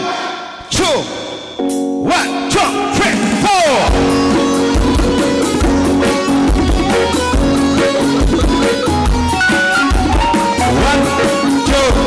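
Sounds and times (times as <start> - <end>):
drums keeping steady beat: 2.5 - 12.0
electric guitar: 3.9 - 12.0
person counting in: 10.6 - 12.0.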